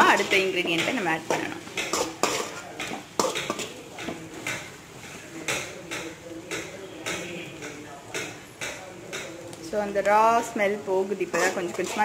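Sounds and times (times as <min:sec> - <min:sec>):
spatula scraping metal pan: 0:00.0 - 0:03.8, 0:11.1 - 0:12.0.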